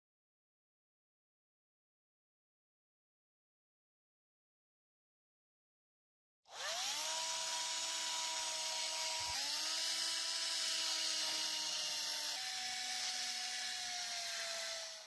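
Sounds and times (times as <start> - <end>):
rotary tool motor whine: 6.5 - 15.0
sanding disc hissing on metal: 6.7 - 15.0.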